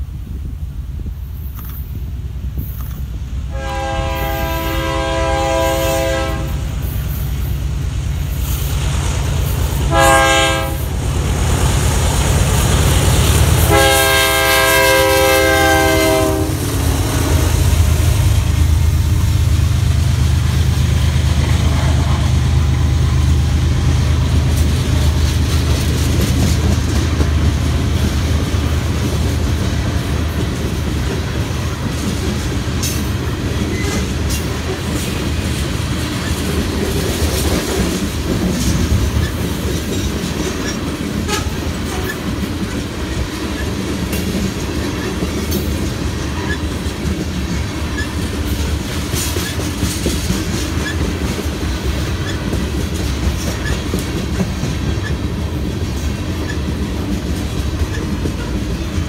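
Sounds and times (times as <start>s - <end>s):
train rumble: 0.0s - 59.0s
locomotive air horn blasts: 3.5s - 6.8s, 9.9s - 11.0s, 13.6s - 17.9s, 41.2s - 42.2s
wheels clacking on rail joints: 4.8s - 59.0s.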